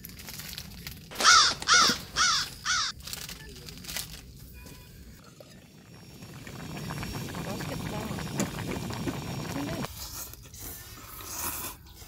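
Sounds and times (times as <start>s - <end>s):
crow cawing: 1.2s - 3.0s.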